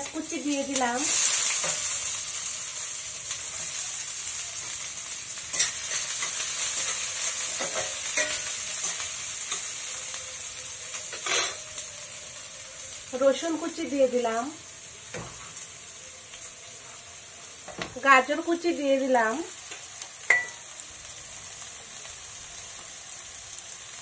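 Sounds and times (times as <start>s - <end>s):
onion frying in hot oil: 0.0s - 24.0s
spoon scraping and knocking pan: 5.5s - 9.7s, 11.1s - 11.7s, 15.1s - 15.6s, 19.7s - 20.7s.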